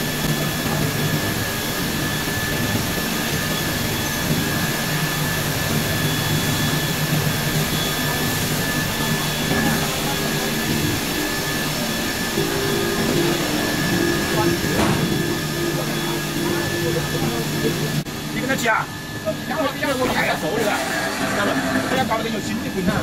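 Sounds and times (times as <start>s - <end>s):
machine drone of motors and fans: 0.0s - 23.0s
thin high whine: 0.0s - 23.0s
low hum: 5.4s - 19.2s.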